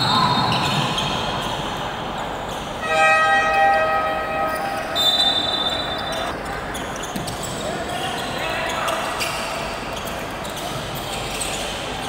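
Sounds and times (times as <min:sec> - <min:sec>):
game horn chord: 0:02.8 - 0:05.0
referee's whistle blast: 0:02.8 - 0:06.3.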